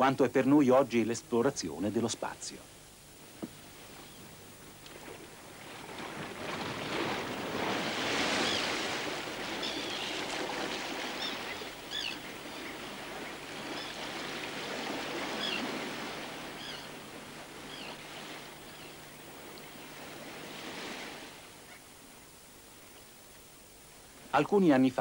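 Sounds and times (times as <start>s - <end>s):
surf washing onto beach: 4.8s - 21.7s.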